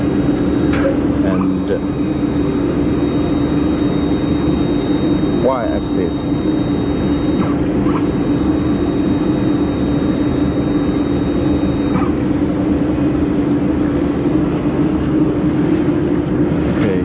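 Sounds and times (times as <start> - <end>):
laser welding machine humming: 0.0 - 16.8
faint high whine: 0.0 - 17.0.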